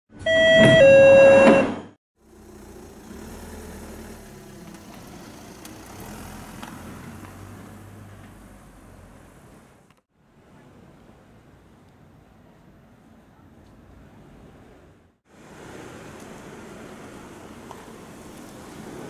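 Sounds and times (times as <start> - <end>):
two-note electronic beep: 0.3 - 1.8.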